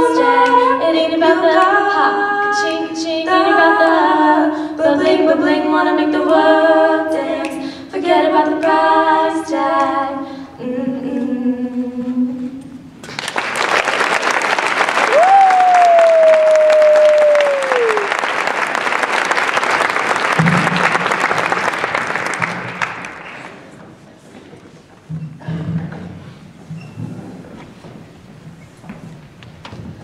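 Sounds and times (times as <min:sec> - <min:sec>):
girls singing: 0:00.0 - 0:13.0
audience applause: 0:13.0 - 0:23.7
long sliding whistle: 0:15.2 - 0:18.1.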